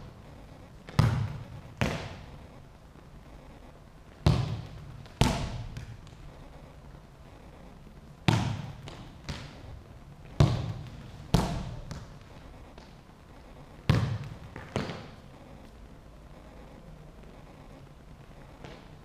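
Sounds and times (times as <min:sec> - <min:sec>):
football thuds echoing in hall: 0:00.0 - 0:02.5, 0:04.1 - 0:06.5, 0:08.2 - 0:13.0, 0:13.8 - 0:15.3, 0:18.6 - 0:19.0.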